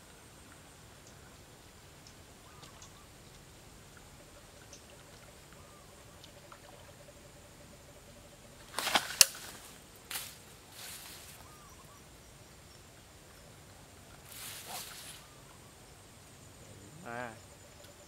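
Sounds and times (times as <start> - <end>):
fishing line rustling: 8.6 - 12.0, 13.2 - 15.6.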